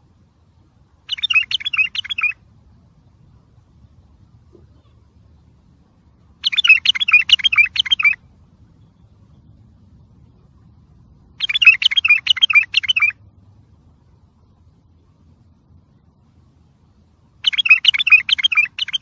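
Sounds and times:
bird warbling song: 1.0s - 2.4s, 6.3s - 13.2s, 17.4s - 19.0s.

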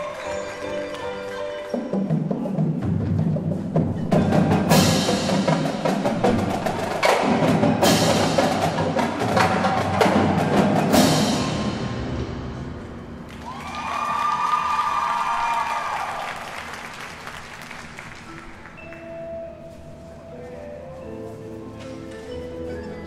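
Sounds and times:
marimbas and keyboards: 0.0s - 13.0s, 18.3s - 23.0s
marching drumline playing: 1.7s - 13.6s.

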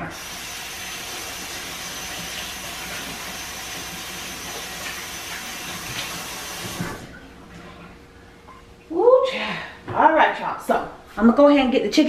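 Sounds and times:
hands washing under water: 0.1s - 8.0s
tap running into sink: 1.2s - 7.2s.

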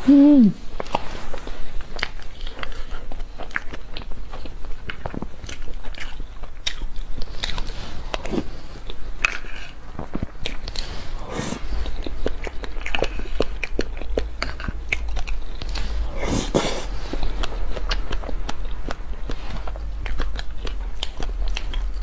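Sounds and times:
wet mouth eating sounds: 0.0s - 22.0s.

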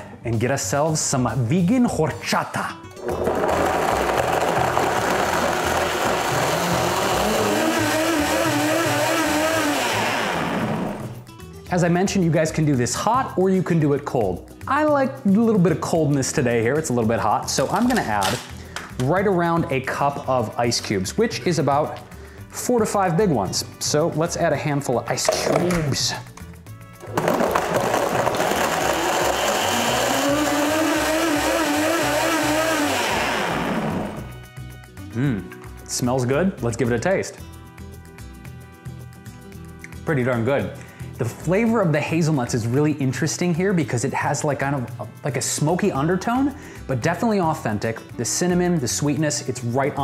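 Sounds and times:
blender running: 3.0s - 11.2s, 27.0s - 34.4s
ice cubes in blender: 3.0s - 11.2s, 27.0s - 34.3s.

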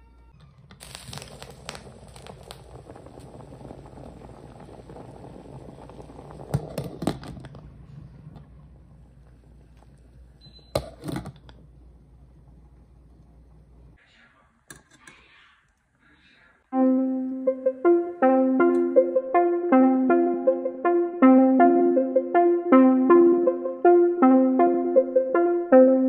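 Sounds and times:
pot boiling hard: 0.4s - 14.0s.

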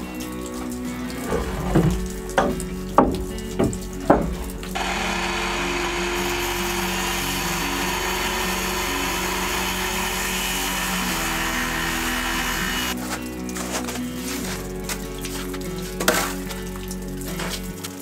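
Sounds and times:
power saw cutting boards: 4.8s - 13.0s.

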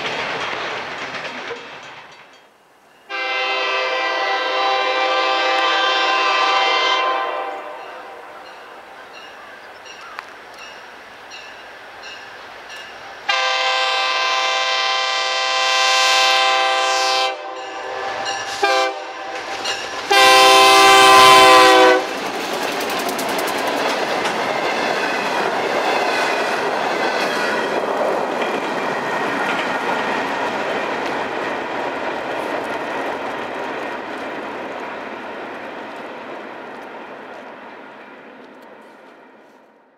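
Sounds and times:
train wheels clacking over rail: 0.0s - 2.5s, 17.6s - 36.1s
locomotive air horn blasts: 3.1s - 8.5s, 13.3s - 22.1s.

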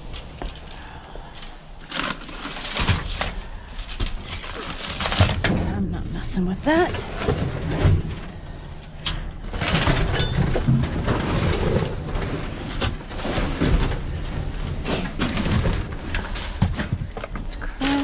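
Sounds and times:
rustling paper and plastic bags: 0.0s - 18.0s
knocks of trash shifting: 9.1s - 18.0s.

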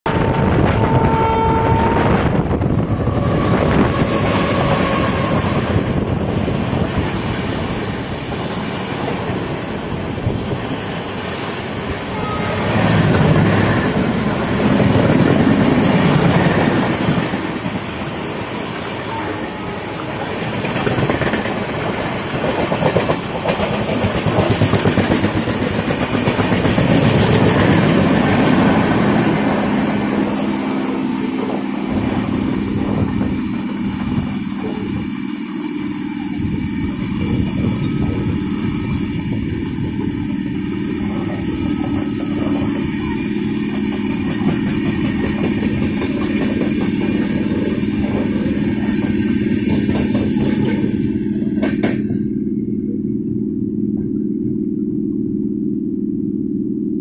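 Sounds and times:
train horn: 0.1s - 6.2s, 12.0s - 14.3s, 18.9s - 20.2s, 28.9s - 35.0s, 35.7s - 39.5s
train wheels rumbling on rails: 0.1s - 54.3s.

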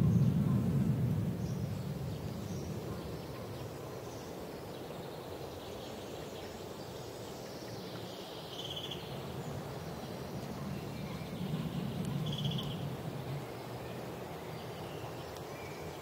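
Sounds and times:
low rushing noise: 0.0s - 5.7s
songbirds chirping: 0.0s - 16.0s.

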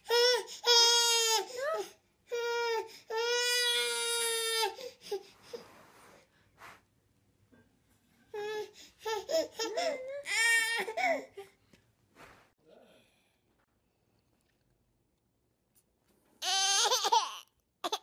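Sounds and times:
baby crying: 8.3s - 11.6s, 16.4s - 18.0s.

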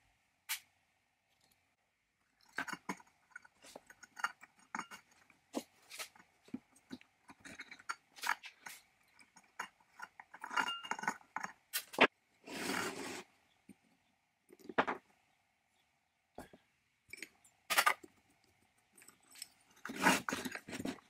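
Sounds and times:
gritty metal scrapes: 12.4s - 13.3s, 19.4s - 21.0s.

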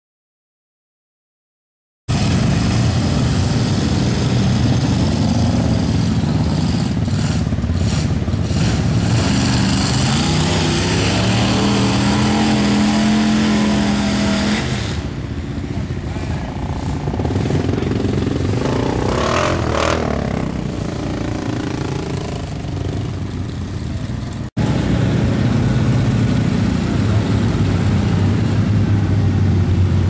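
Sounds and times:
truck engine revving hard: 2.1s - 15.3s, 16.0s - 23.1s.

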